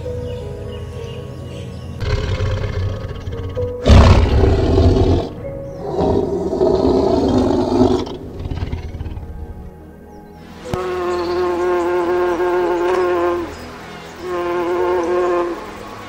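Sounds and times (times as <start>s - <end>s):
background music: 0.0s - 16.0s
loud rough animal roars: 2.0s - 9.4s.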